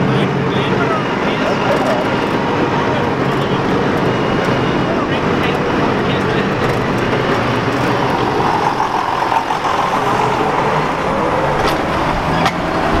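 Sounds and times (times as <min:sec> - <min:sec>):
tractor engine drone passing: 0:00.0 - 0:13.0.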